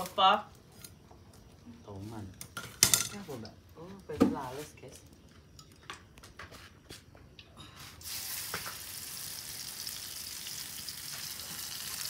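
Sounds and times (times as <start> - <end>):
oil sizzling in a wok: 8.0 - 12.0.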